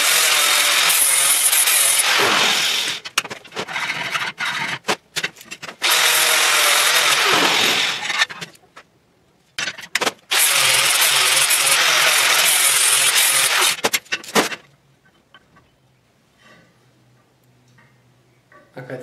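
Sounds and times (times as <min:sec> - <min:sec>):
angle grinder grinding steel: 0:00.0 - 0:03.0, 0:05.8 - 0:08.4, 0:10.3 - 0:13.8.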